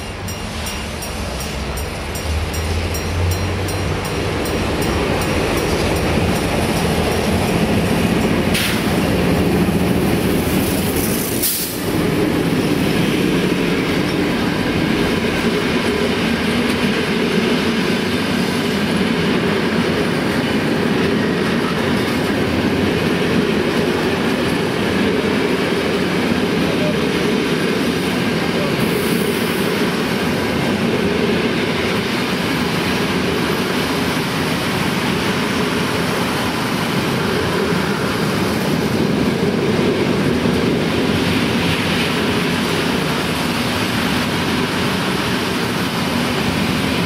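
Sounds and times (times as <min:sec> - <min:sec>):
diesel locomotives passing: 0:00.0 - 0:47.0
train wheels on rails: 0:00.0 - 0:47.0.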